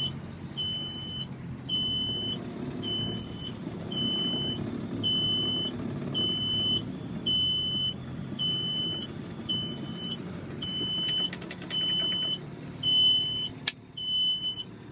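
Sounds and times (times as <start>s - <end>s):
electronic warning beep: 0.0s - 14.7s
off-road vehicle engines running: 0.0s - 14.9s.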